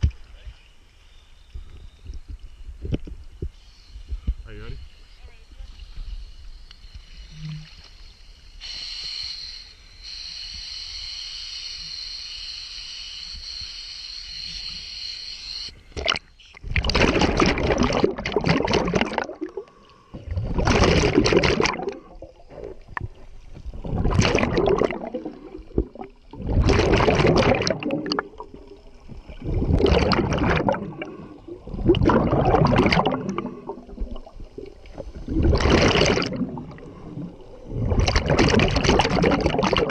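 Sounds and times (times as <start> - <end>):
steady hiss: 2.4 - 16.5
underwater exhaust bubbles: 16.0 - 39.9.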